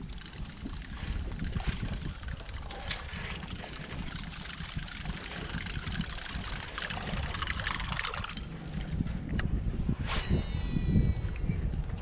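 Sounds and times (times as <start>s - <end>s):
fishing lure churning water: 0.0s - 12.0s
wind on microphone: 0.0s - 12.0s.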